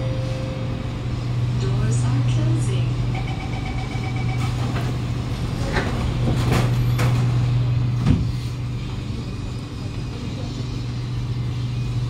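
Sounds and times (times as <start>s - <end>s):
low hum of stationary train: 0.0s - 12.0s
train doors sliding closed: 4.4s - 9.0s.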